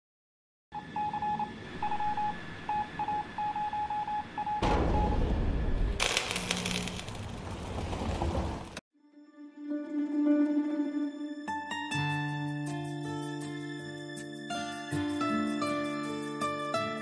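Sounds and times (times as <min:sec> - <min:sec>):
electronic beeps: 0:00.8 - 0:05.3
harsh crackly rushing noise: 0:05.8 - 0:08.8.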